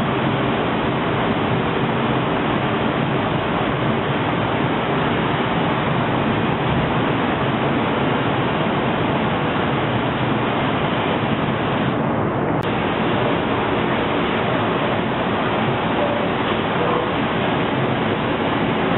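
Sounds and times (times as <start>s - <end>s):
spray booth air rushing: 12.6s - 18.9s.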